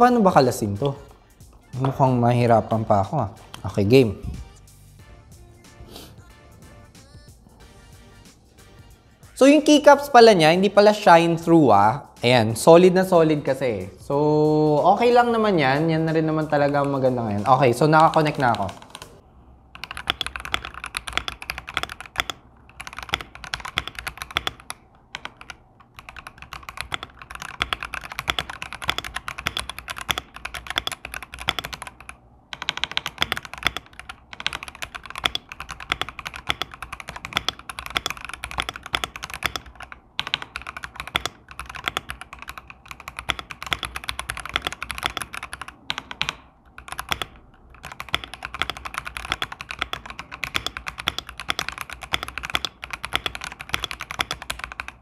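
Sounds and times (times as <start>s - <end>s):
fast typing on mechanical keyboard: 15.1s - 55.0s.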